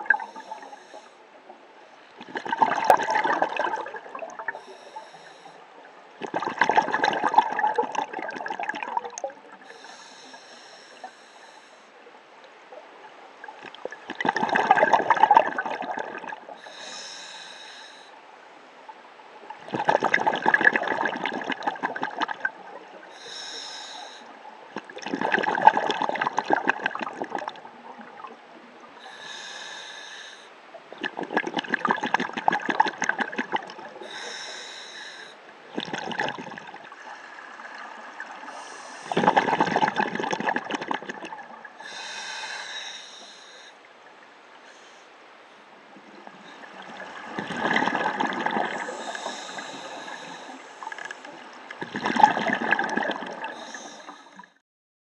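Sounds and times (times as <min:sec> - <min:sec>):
regulator inhalation hiss: 0:00.2 - 0:01.2, 0:04.6 - 0:05.6, 0:09.7 - 0:11.9, 0:16.6 - 0:18.1, 0:23.1 - 0:24.3, 0:29.0 - 0:30.5, 0:34.0 - 0:35.4, 0:41.8 - 0:43.8, 0:48.8 - 0:51.4, 0:53.6 - 0:54.5
bubbling exhalations underwater: 0:02.2 - 0:04.6, 0:06.2 - 0:09.6, 0:13.7 - 0:16.4, 0:19.6 - 0:22.6, 0:24.8 - 0:28.2, 0:31.0 - 0:34.1, 0:35.7 - 0:36.9, 0:39.1 - 0:41.5, 0:46.8 - 0:49.8, 0:51.8 - 0:54.5.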